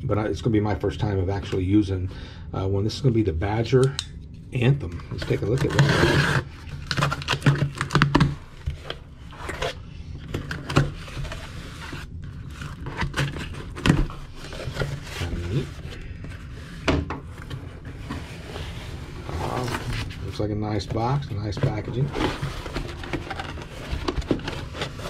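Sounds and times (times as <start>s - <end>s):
rustling cardboard: 10.6s - 25.0s.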